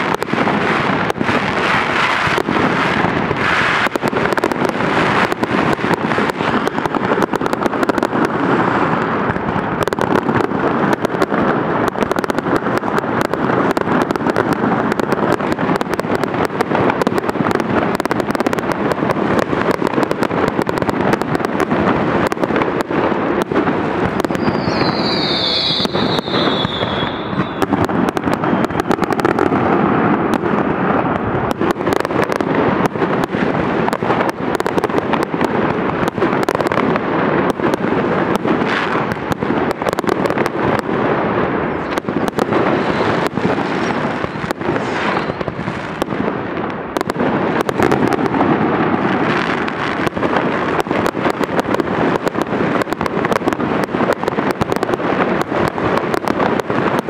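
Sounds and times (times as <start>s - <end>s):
fireworks bangs and crackling: 0.0s - 57.0s
firework whistle falling: 24.2s - 27.8s, 42.7s - 45.6s.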